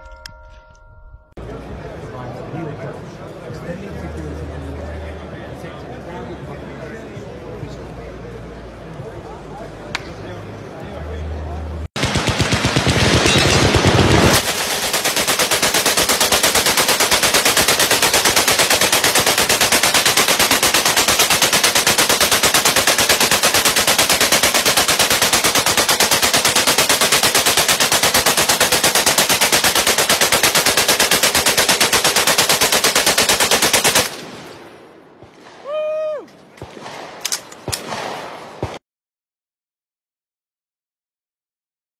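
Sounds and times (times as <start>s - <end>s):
machine gun burst: 12.0s - 34.5s.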